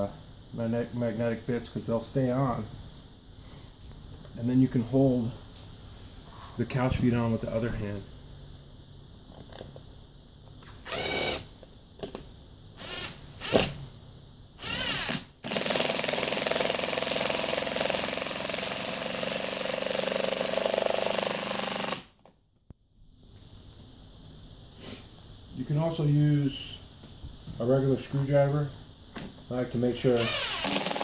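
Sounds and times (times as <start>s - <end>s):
cordless impact driver driving screws: 30.1s - 31.0s.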